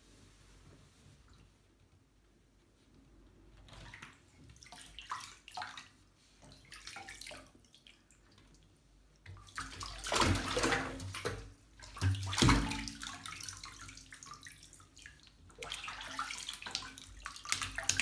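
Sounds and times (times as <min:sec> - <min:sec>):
water splashing in a bathtub: 0:03.6 - 0:18.0.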